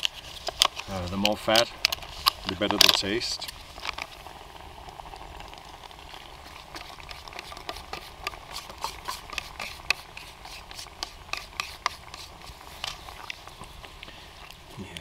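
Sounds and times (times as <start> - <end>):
spoon scraping metal pot: 6.5 - 13.2.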